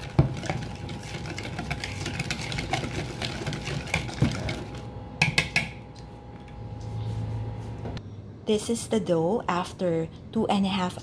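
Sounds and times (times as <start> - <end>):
whisk scraping glass bowl: 0.0 - 4.8.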